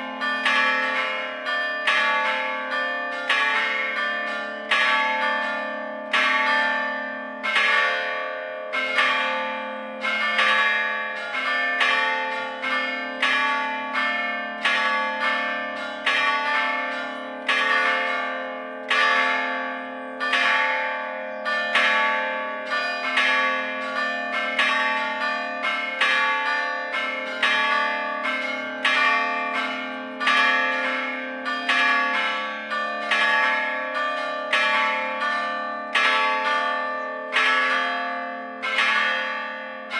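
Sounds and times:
church bells struck by hammers: 0:00.0 - 0:39.9.

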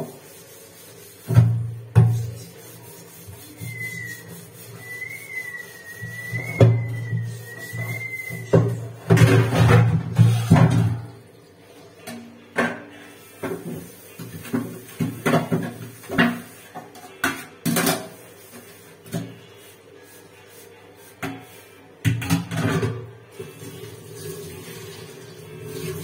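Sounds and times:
metal dishes and pots clanking: 0:07.9 - 0:11.2, 0:12.0 - 0:18.2, 0:22.1 - 0:23.1.

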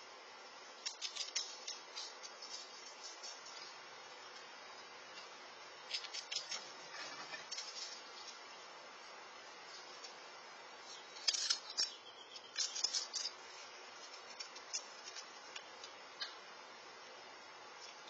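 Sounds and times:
squirrel cracking peanut shells: 0:00.8 - 0:04.5, 0:05.8 - 0:08.4, 0:10.9 - 0:16.4.

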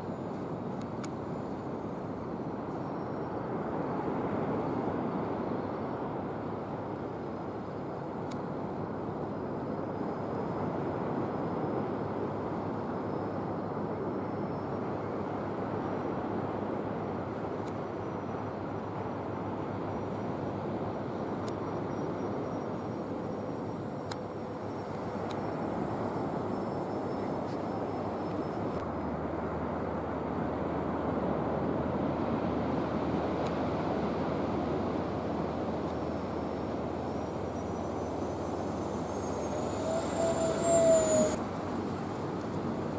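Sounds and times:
faint high whine: 0:00.0 - 0:42.9
jet rushing overhead: 0:34.6 - 0:42.9.

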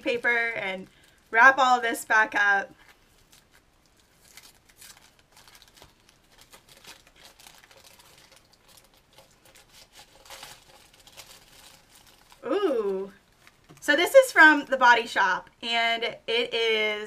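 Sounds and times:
tissue paper rustling: 0:02.7 - 0:13.8.

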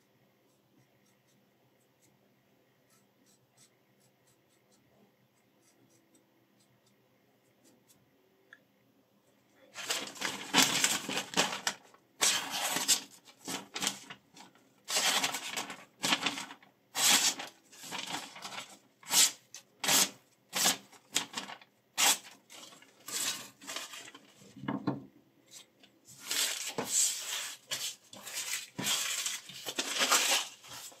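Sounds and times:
knife slicing paper: 0:09.8 - 0:14.1, 0:14.8 - 0:24.2, 0:26.1 - 0:31.0.

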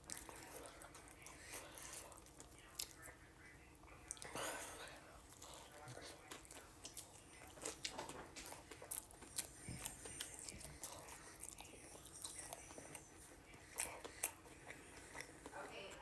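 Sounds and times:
person chewing with wet smacks: 0:00.0 - 0:16.0.

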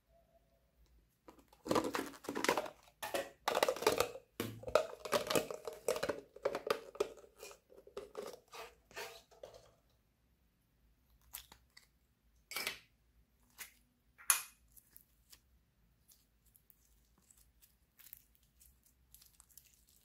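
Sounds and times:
plastic container crinkling: 0:01.3 - 0:09.8.

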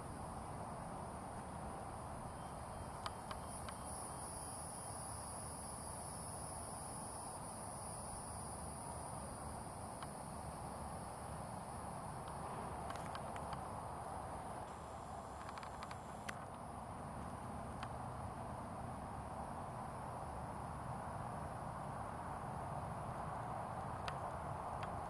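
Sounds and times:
high-pitched insect chorus: 0:00.0 - 0:25.0
low outdoor rumble: 0:08.7 - 0:25.0
faint clicks: 0:14.6 - 0:16.6.

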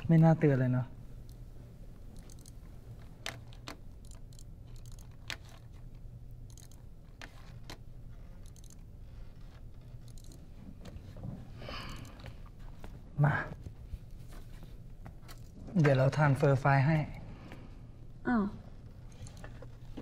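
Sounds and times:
low room hum: 0:00.0 - 0:20.0
small sharp clicks and ticks: 0:02.1 - 0:02.6, 0:03.3 - 0:05.6, 0:06.4 - 0:07.8, 0:08.4 - 0:08.8.

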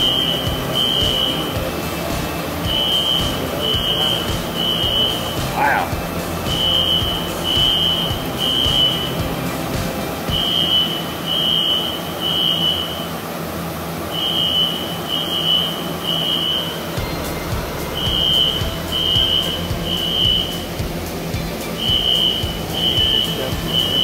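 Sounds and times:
fire alarm beeping: 0:00.0 - 0:05.4, 0:06.6 - 0:09.4, 0:10.3 - 0:13.1, 0:14.1 - 0:16.9, 0:18.0 - 0:20.6, 0:21.8 - 0:24.0
steady rushing noise: 0:00.0 - 0:24.0.

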